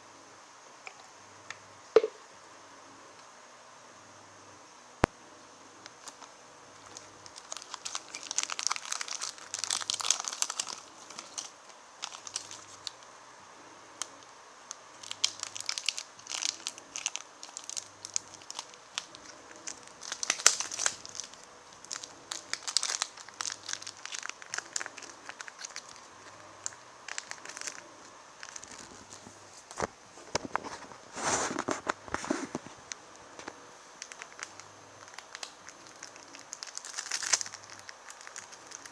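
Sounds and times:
plastic wrapper crinkling: 5.9s - 13.1s, 14.0s - 38.9s.

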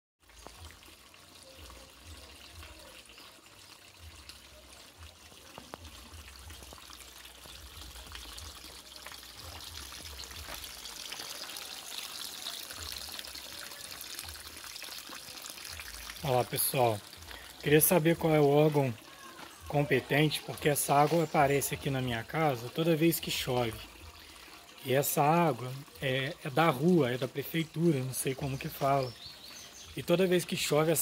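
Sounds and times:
water trickling over ground: 0.2s - 31.0s.

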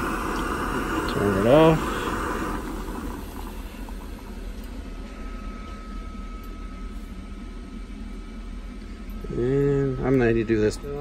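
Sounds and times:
boiled water bubbling: 0.0s - 5.0s
steady low hum: 0.0s - 11.0s.

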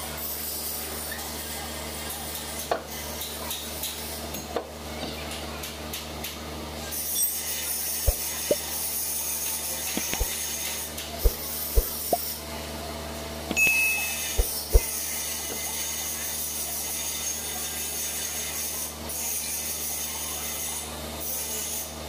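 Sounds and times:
low workshop hum: 11.2s - 16.0s.

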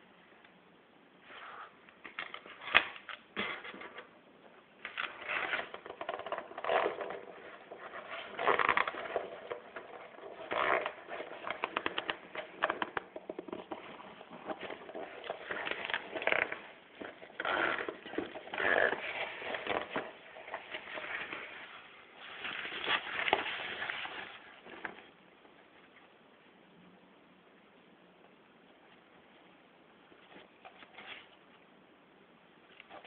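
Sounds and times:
fabric bag rustling and crinkling: 5.0s - 25.1s.

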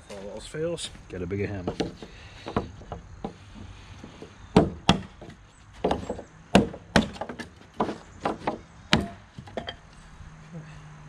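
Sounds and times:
hammer knocking wooden blocks: 1.6s - 3.4s, 4.1s - 9.8s.

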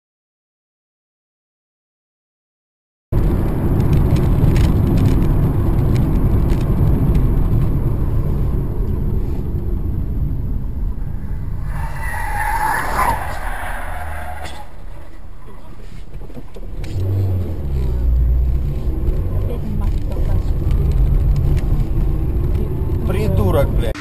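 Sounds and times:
car engine and tyre rumble: 3.2s - 24.0s
high-pitched squeal: 10.8s - 15.8s.

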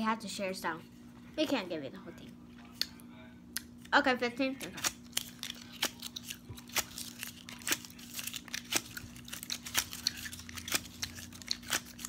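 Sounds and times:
tape peeling and tearing: 4.8s - 12.0s.

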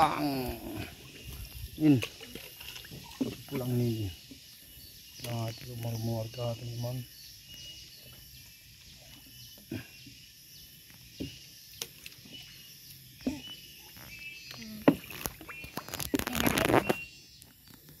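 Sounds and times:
water splashing: 0.0s - 4.1s
faint chirps: 0.0s - 18.0s.

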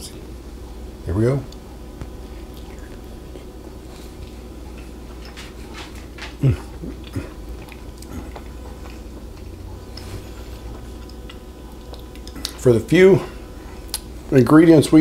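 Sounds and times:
chewing food: 1.5s - 12.6s, 13.6s - 14.1s.

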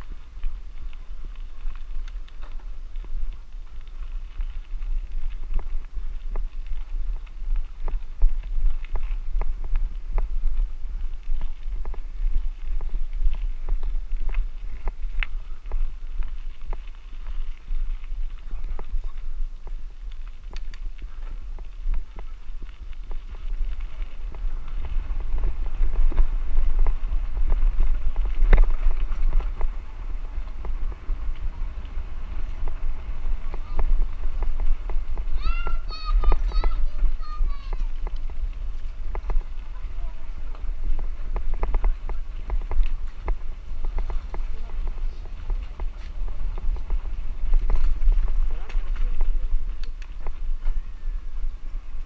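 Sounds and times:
bike clicks and knocks: 0.0s - 35.4s, 37.1s - 50.9s
wind rumbling on camera: 0.0s - 52.0s.

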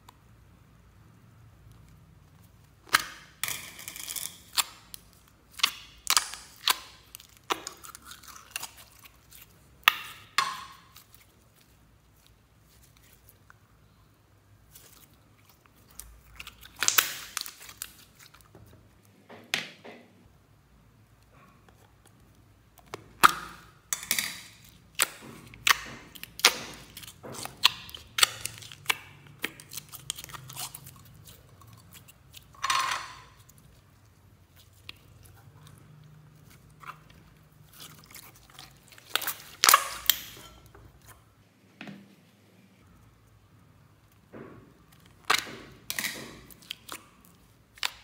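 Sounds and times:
slime squelching: 1.3s - 19.1s, 21.0s - 41.4s, 42.8s - 48.0s
slime clicking and popping: 2.8s - 11.3s, 15.8s - 18.3s, 37.8s - 40.4s.

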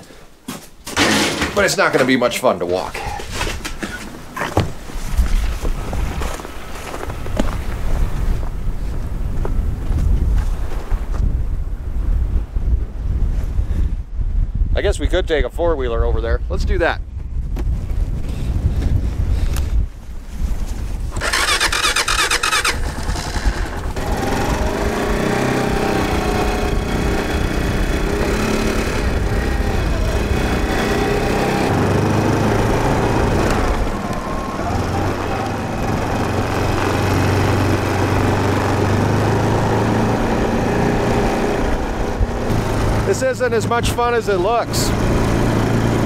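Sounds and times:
electric starter whirring: 21.1s - 39.9s
quad bike engine running: 21.1s - 44.0s, 44.6s - 46.0s.

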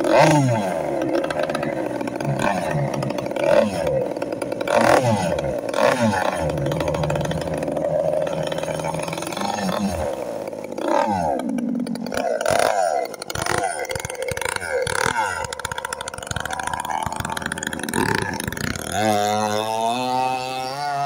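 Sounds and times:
small model engine revving: 0.0s - 21.0s.

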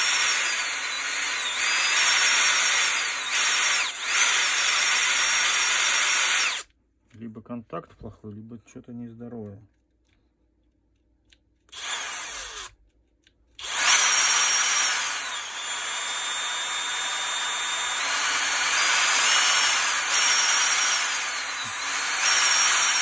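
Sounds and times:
electric motor whining: 0.0s - 6.6s, 13.6s - 23.0s.

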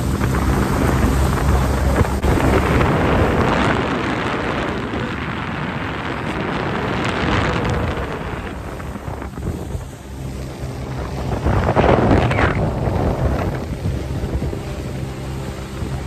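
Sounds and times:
boat engine: 0.0s - 16.0s
water rushing past hull: 0.0s - 16.0s
wind buffeting microphone: 0.0s - 16.0s.

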